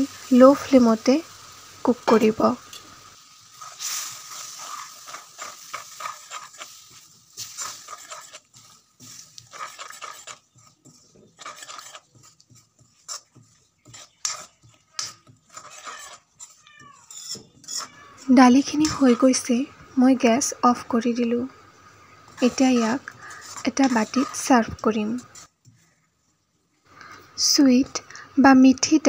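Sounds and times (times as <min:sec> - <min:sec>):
soft sizzle: 0:00.0 - 0:29.0
metal spoon scraping pan: 0:03.5 - 0:19.4, 0:22.2 - 0:25.5.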